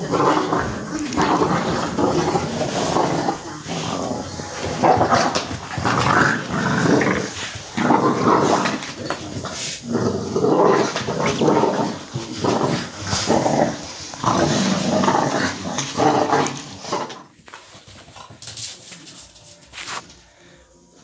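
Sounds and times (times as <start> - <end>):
puppies growling: 0.0 - 17.4.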